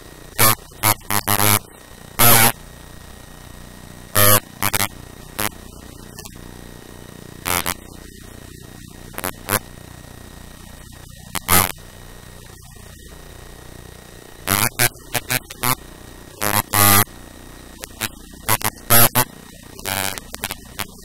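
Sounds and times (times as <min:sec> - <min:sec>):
steady hiss and hum: 0:00.0 - 0:21.0
distorted voice bursts: 0:00.3 - 0:02.6, 0:04.1 - 0:06.4, 0:07.4 - 0:09.7, 0:10.8 - 0:11.9, 0:14.4 - 0:17.1, 0:17.8 - 0:21.0.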